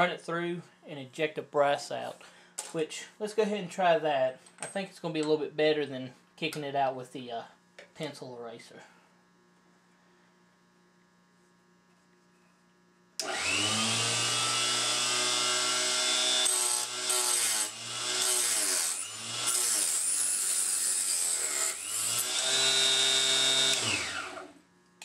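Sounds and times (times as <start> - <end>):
electric chop saw whining: 13.2 - 24.6.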